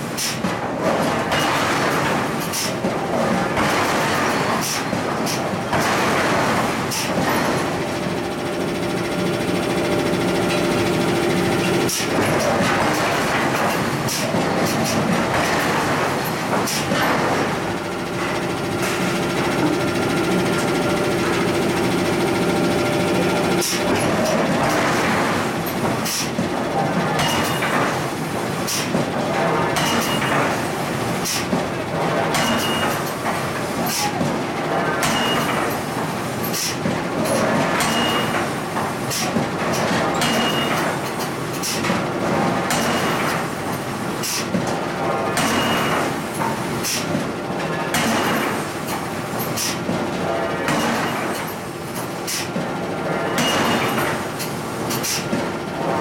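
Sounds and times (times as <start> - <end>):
machinery running: 5.1 - 28.6.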